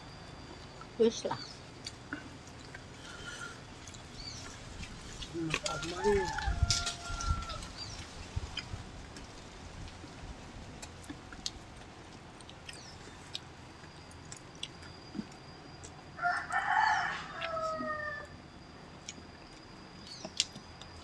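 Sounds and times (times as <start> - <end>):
people eating clicks and smacks: 1.7 - 10.1, 10.7 - 16.7, 17.4 - 18.0, 18.9 - 21.0
rooster crowing: 5.6 - 7.8, 16.2 - 18.4.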